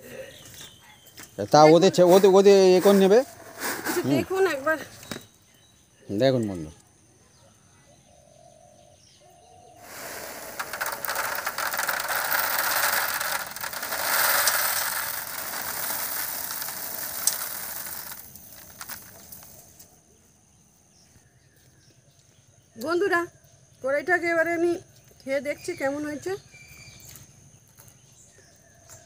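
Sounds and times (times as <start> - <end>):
dry chickpeas pouring into a bowl: 9.8 - 19.7.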